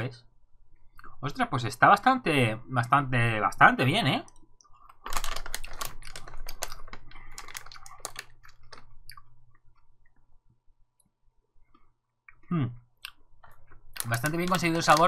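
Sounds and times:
candies being chewed crunchily: 4.6s - 9.9s, 13.0s - 15.0s.

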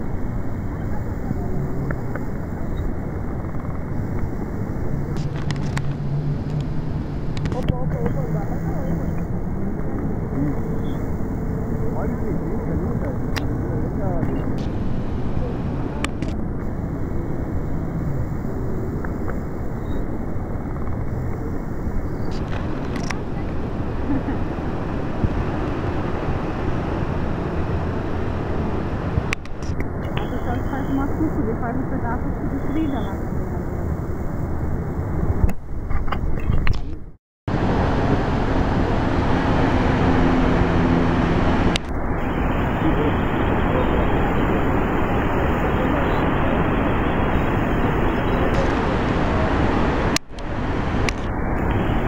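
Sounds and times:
low rushing noise: 0.0s - 36.1s, 37.5s - 52.0s
waterfall roaring: 37.5s - 52.0s.

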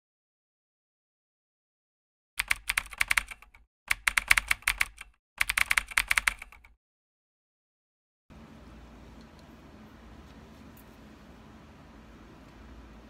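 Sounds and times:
computer keyboard clicks: 2.4s - 6.8s
faint steady hiss: 8.3s - 13.0s.

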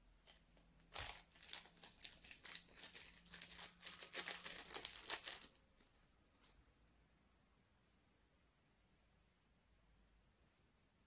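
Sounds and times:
plastic bag crinkling: 0.3s - 6.6s.

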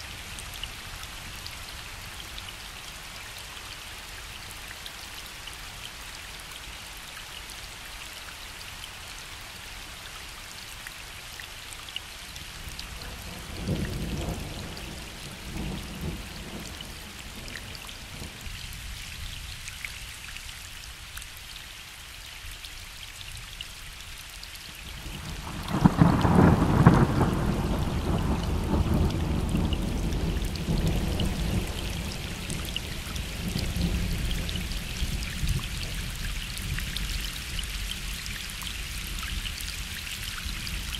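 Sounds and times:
gentle rain on a lake: 0.0s - 40.9s
distant thunder rumbling: 25.5s - 32.2s.

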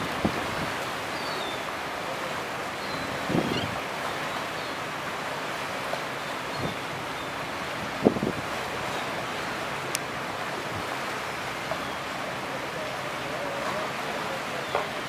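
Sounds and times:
water washing along a hull: 0.0s - 15.0s
wind buffeting microphone: 3.2s - 3.8s, 7.7s - 8.6s.

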